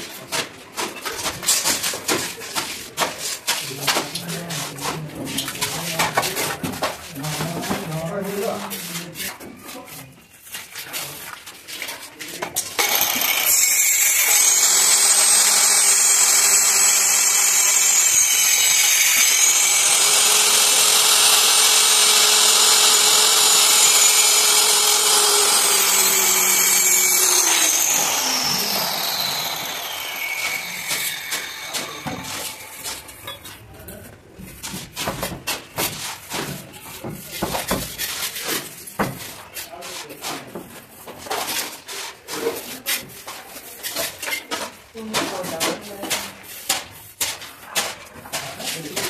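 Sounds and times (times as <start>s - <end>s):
electric planer shaving wood: 12.8s - 33.2s.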